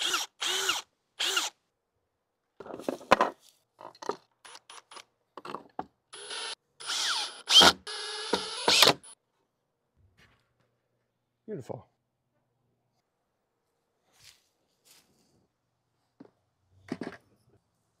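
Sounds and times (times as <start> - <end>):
cordless drill into wood: 0.0 - 1.6, 6.1 - 9.2.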